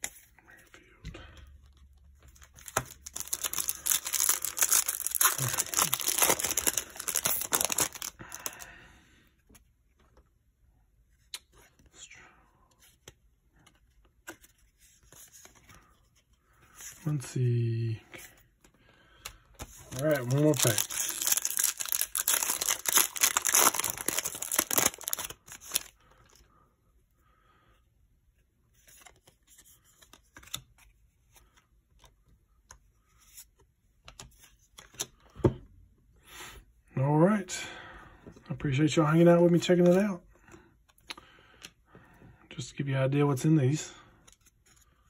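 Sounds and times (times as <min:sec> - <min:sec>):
foil wrapper crinkling: 0:02.6 - 0:08.6, 0:19.8 - 0:25.9.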